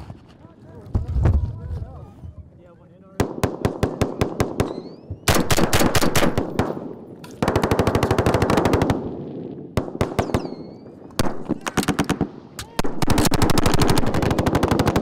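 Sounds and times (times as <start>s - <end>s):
automatic gunfire bursts: 3.2s - 6.8s, 7.4s - 9.1s, 11.2s - 15.0s.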